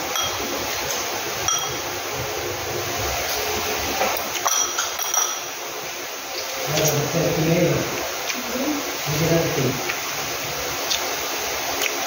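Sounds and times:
steady hiss: 0.0s - 12.0s
dishes and utensils clinking: 0.1s - 0.5s, 1.4s - 1.9s, 4.0s - 5.5s.

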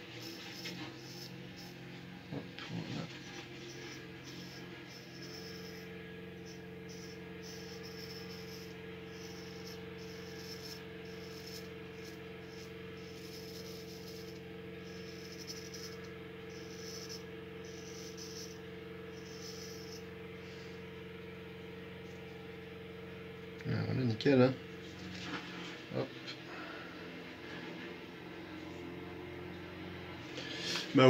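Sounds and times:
razor scraping stubble: 0.0s - 20.2s
steady low hum: 0.0s - 31.0s.

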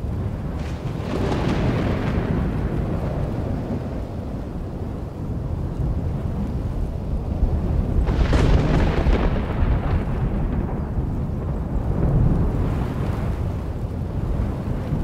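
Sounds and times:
low thunder rumble: 0.0s - 15.0s
thunder crack: 0.3s - 4.8s, 7.4s - 15.0s.

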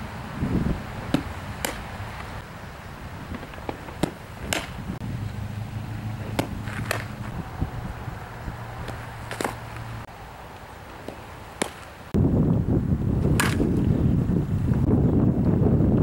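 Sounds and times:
softball bat smack: 1.1s - 1.9s, 3.4s - 4.8s, 6.3s - 7.3s, 8.8s - 9.8s, 11.0s - 11.9s, 13.3s - 13.7s.

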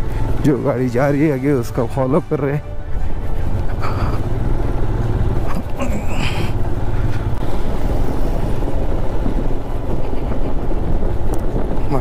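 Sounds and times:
motorcycle engine running: 2.8s - 11.9s
wind buffeting microphone: 3.1s - 12.0s.

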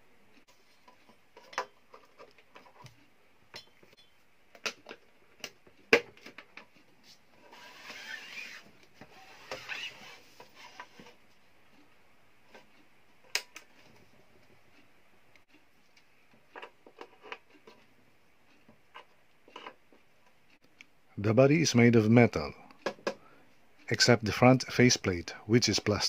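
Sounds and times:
metal case scraping on wooden table: 7.4s - 11.2s.

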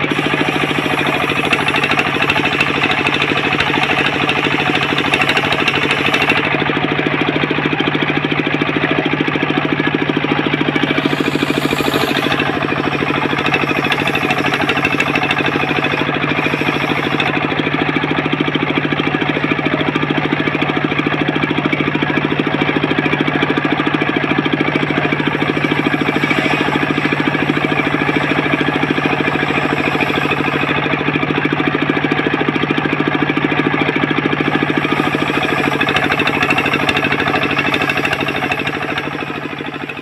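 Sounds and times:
saw blade cutting wood hiss: 0.0s - 6.6s, 10.8s - 17.9s, 24.8s - 31.0s, 34.4s - 40.0s
table saw engine knocking: 0.0s - 40.0s.

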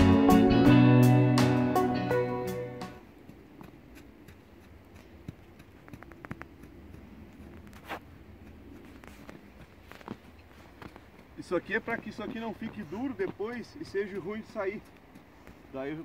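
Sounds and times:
guitar music: 0.0s - 3.0s
boots crunching snow: 2.8s - 16.0s.

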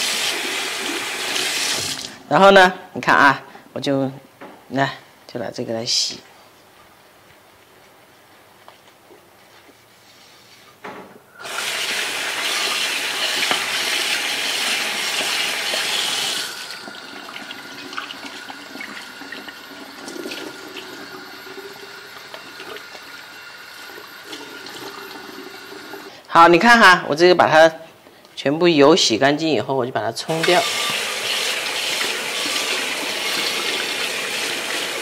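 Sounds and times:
tap water splashing into sink: 12.7s - 16.0s.

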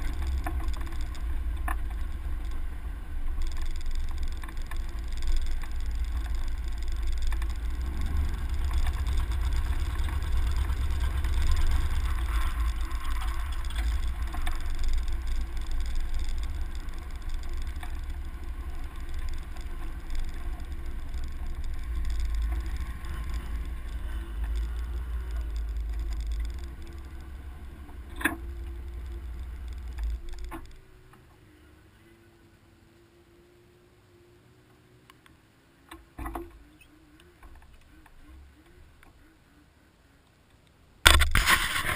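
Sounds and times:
wind rumble on microphone: 0.0s - 31.1s
faint steady hum: 0.0s - 41.9s
truck engine and tyre noise: 0.0s - 41.9s
sharp click: 40.6s - 41.9s.

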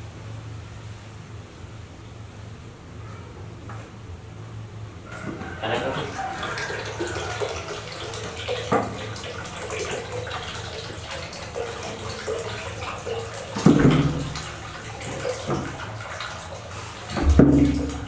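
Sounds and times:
water pouring and splashing into basin: 5.1s - 18.0s
thud: 17.2s - 17.8s.

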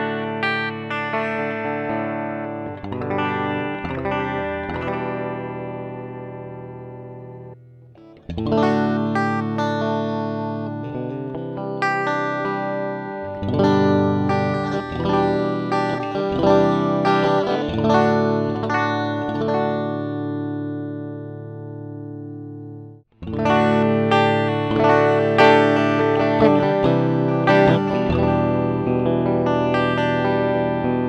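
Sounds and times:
electric guitar chords and notes: 0.0s - 31.0s.

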